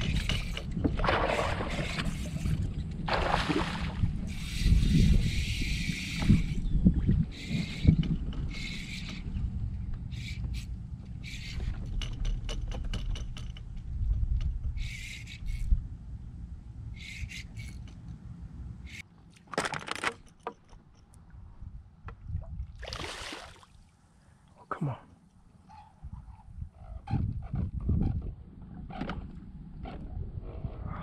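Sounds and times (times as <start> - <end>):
steady low rumble: 8.1 - 12.2, 13.2 - 19.0.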